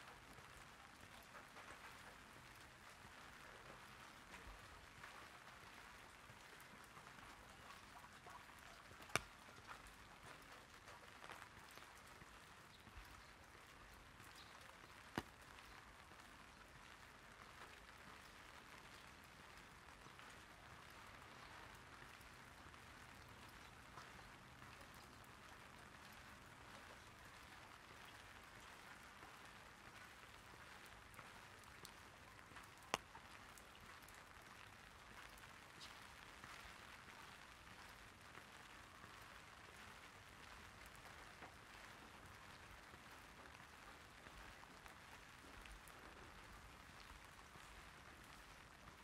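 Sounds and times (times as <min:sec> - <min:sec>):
light rain on an umbrella: 0:00.0 - 0:49.0.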